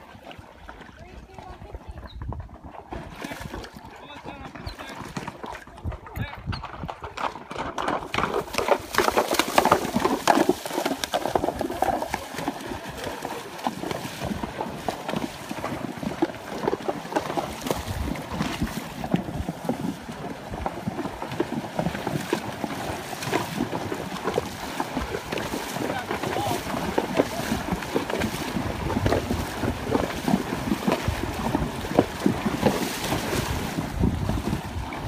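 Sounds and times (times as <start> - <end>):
hooves splashing through water: 0.0 - 35.0.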